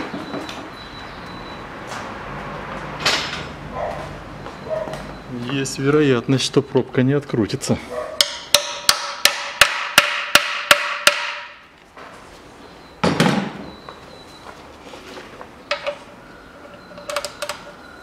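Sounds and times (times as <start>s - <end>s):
hammer striking a wrench: 8.2s - 11.6s.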